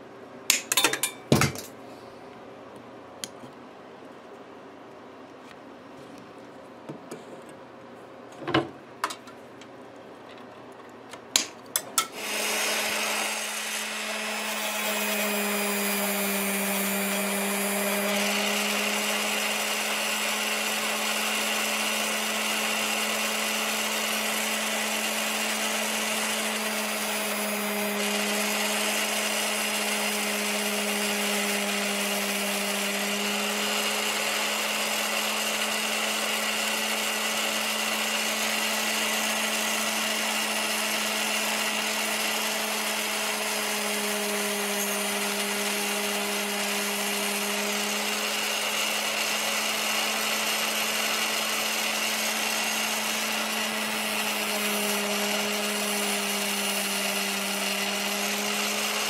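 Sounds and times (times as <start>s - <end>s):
bench grinder running: 12.0s - 59.0s.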